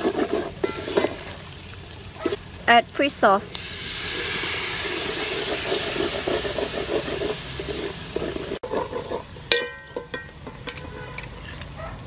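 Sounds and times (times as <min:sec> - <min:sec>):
wooden spoon stirring in metal pot: 0:00.0 - 0:01.5, 0:03.7 - 0:11.7
sauce sizzling in hot oil: 0:00.0 - 0:09.5.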